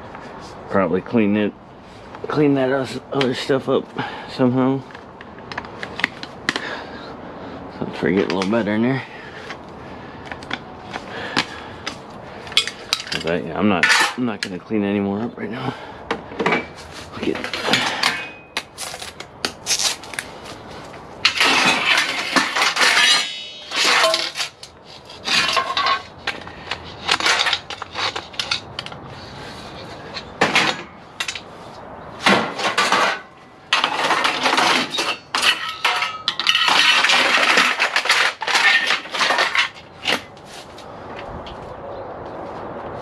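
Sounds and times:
aluminum scrap clattering: 12.5s - 14.6s, 16.1s - 20.0s, 21.2s - 29.0s, 30.0s - 31.5s, 32.2s - 40.3s.

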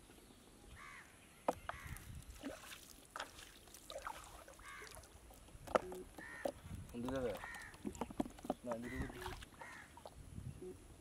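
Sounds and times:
water splashes and drips: 1.7s - 10.2s
bird calling: 4.4s - 5.1s, 5.7s - 11.0s.

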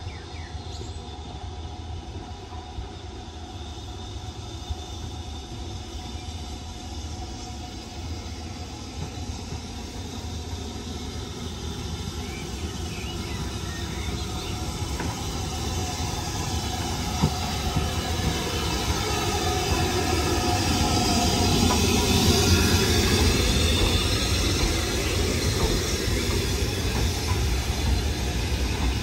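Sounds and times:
steam train rumbling: 0.0s - 29.0s.

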